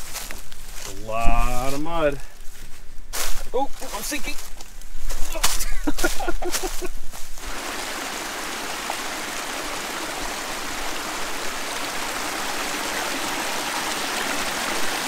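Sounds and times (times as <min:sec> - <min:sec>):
brook splashing over rocks: 0:07.4 - 0:15.0.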